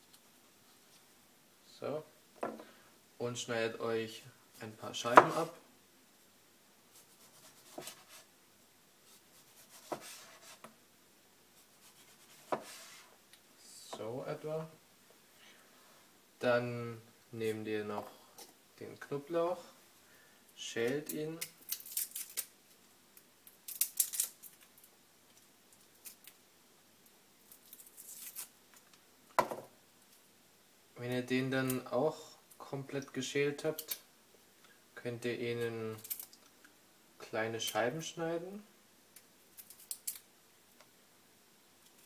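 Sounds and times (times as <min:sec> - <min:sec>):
garlic skin crackling: 0:20.9 - 0:22.6, 0:23.4 - 0:24.8, 0:25.8 - 0:26.4, 0:27.4 - 0:28.9, 0:39.5 - 0:40.3.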